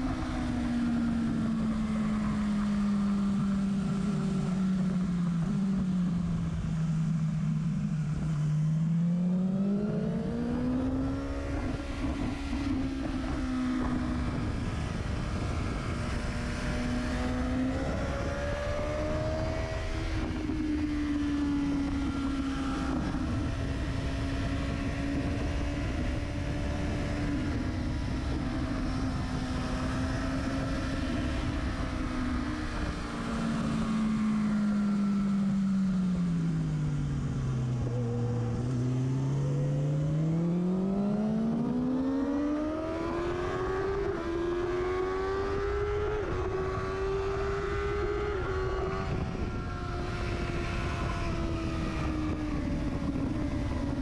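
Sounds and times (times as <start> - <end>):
motorcycle engine revving: 0.0 - 54.0
wind rush: 42.6 - 54.0.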